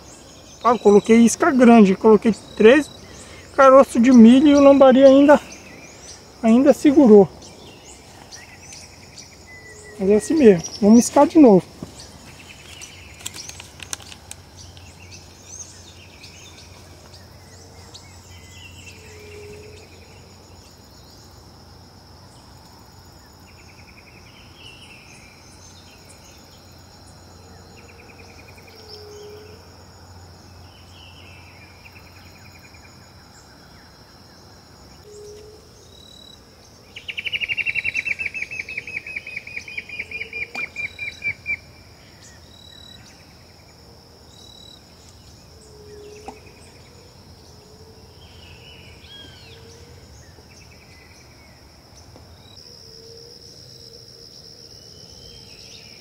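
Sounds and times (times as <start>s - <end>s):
birds calling: 0.0s - 20.4s, 33.3s - 43.3s
insects buzzing: 0.0s - 56.0s.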